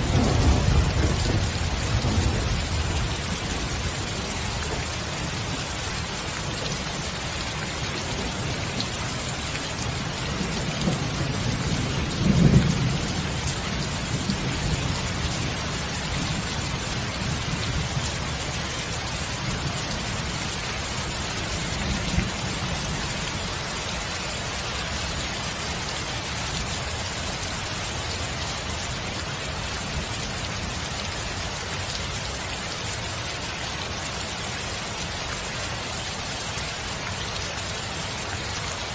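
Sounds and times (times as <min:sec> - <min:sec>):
thunder rumbling: 0:00.0 - 0:05.5, 0:10.3 - 0:18.1
rain hiss: 0:00.0 - 0:38.9.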